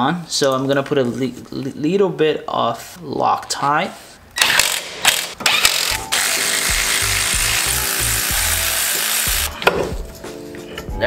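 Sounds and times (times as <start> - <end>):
ratchet tool clicks: 4.4 - 9.5
power ratchet running: 4.5 - 9.5.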